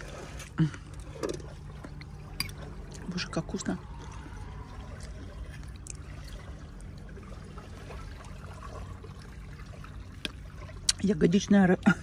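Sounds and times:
water washing: 0.0 - 12.0.

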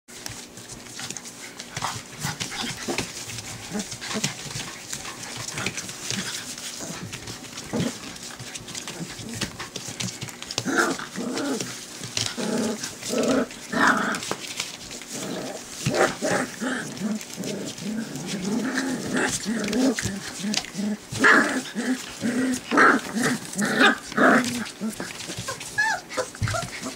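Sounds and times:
paws scrabbling on newspaper: 0.1 - 26.9
puppies growling: 0.2 - 26.9
puppies yipping: 24.9 - 26.9.

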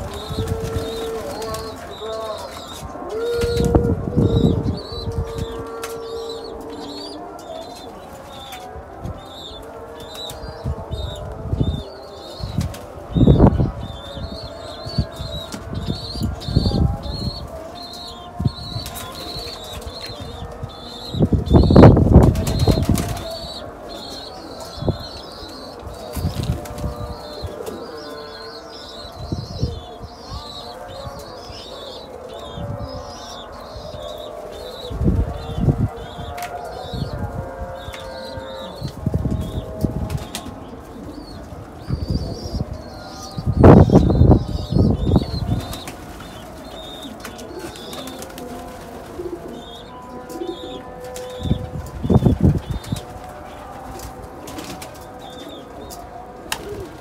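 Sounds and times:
pigeons splashing and beating wings: 22.2 - 23.2, 45.6 - 49.7, 52.3 - 55.4.

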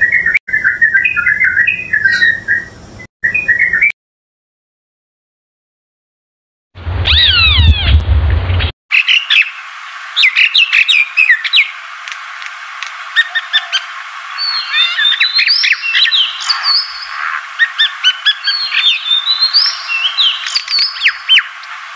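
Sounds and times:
birds chirping and whistling: 0.0 - 3.9, 7.0 - 8.0, 8.6 - 9.6, 10.2 - 11.8, 13.1 - 21.9
steady hiss: 9.0 - 21.9.

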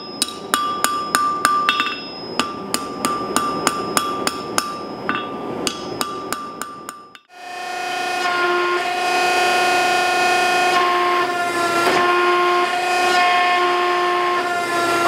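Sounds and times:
hammer striking steel on anvil: 0.0 - 7.3.

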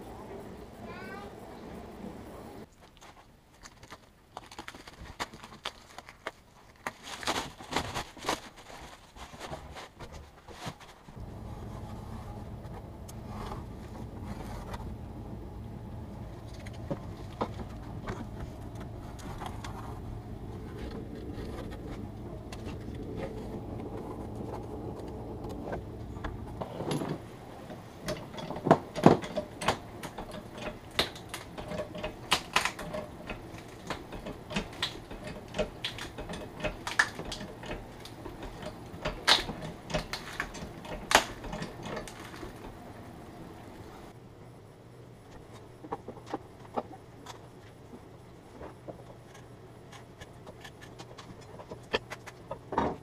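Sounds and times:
steady low rumble: 11.1 - 45.8
wooden boards knocking and clattering: 21.0 - 42.7, 51.0 - 53.0.

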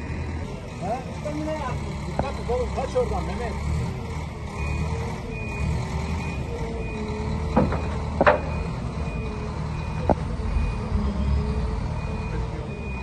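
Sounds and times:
diesel engine running: 0.0 - 13.0
reversing beeper: 4.5 - 13.0
sharp knocks: 7.5 - 8.6.

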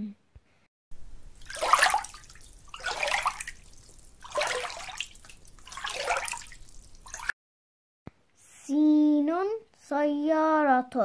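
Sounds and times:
oars splashing through water: 1.0 - 7.3.

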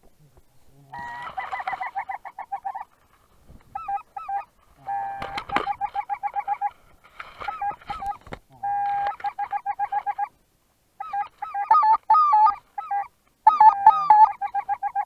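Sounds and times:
grass and netting rustling: 0.0 - 10.4
geese honking: 0.9 - 3.0, 3.7 - 6.8, 7.4 - 10.4, 11.0 - 15.0.

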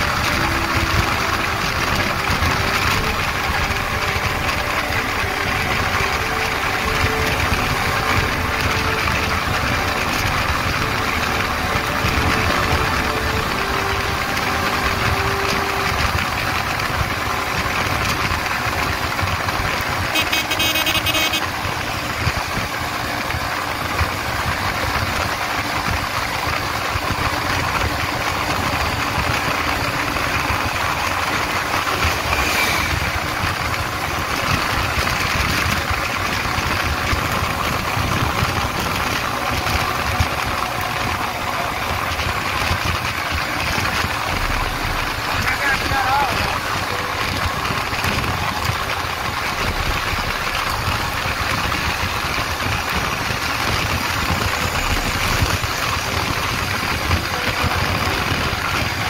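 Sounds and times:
motorcycle engine running: 0.0 - 59.0
wind buffeting microphone: 21.4 - 59.0.

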